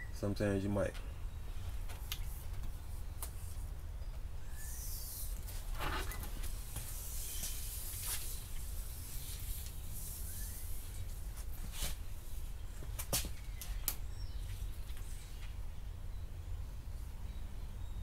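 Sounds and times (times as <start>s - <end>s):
tape backing peeling rustle: 5.1s - 12.0s.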